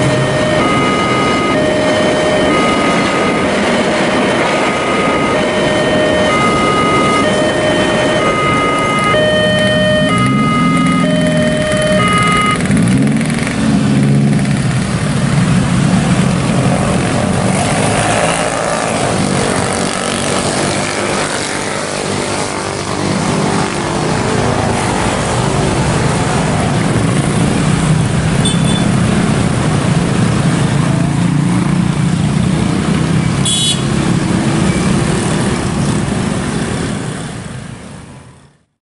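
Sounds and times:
level crossing alternating electronic tones: 0:00.0 - 0:12.9
motorcycles revving and pulling away: 0:00.0 - 0:38.2
road traffic passing: 0:00.0 - 0:38.8.

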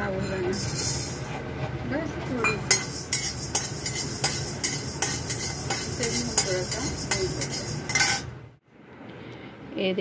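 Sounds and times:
steel spatula scraping iron pan: 0:02.4 - 0:08.3.

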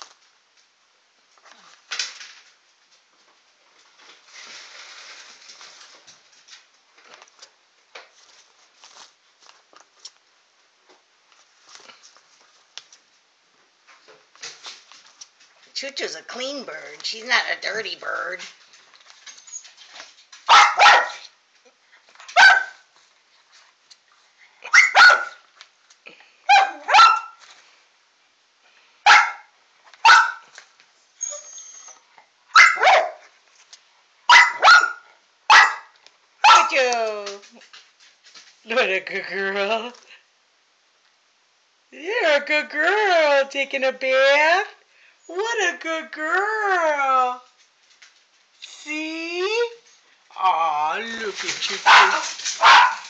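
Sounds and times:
dog barking: 0:20.5 - 0:21.3, 0:22.3 - 0:22.9, 0:24.6 - 0:25.4, 0:26.5 - 0:27.4, 0:29.0 - 0:30.5, 0:32.5 - 0:33.3, 0:34.3 - 0:36.8, 0:51.8 - 0:53.0.

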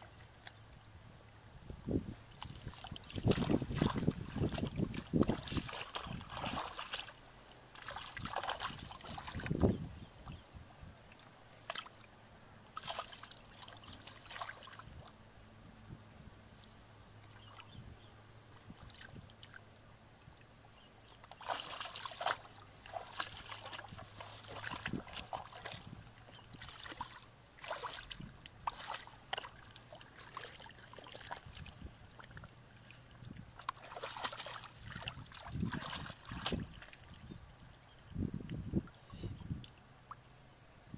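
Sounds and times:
faint low hum: 0:00.0 - 0:40.9
hands splashing in muddy water: 0:02.4 - 0:09.7, 0:11.6 - 0:12.1, 0:12.8 - 0:15.1, 0:21.2 - 0:32.5, 0:33.5 - 0:37.1.

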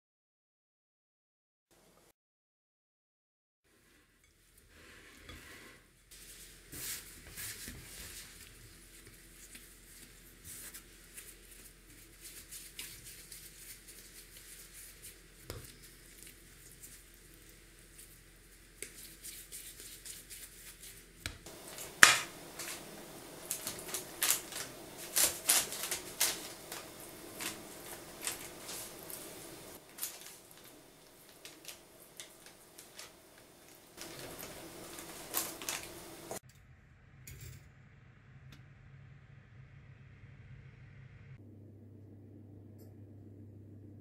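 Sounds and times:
handling soft dough: 0:03.7 - 0:36.4.

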